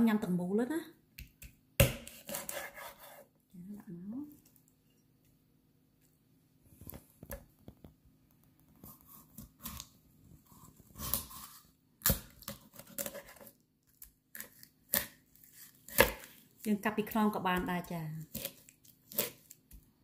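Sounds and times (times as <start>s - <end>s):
knife cutting on wooden board: 1.8s - 3.3s, 18.3s - 19.5s.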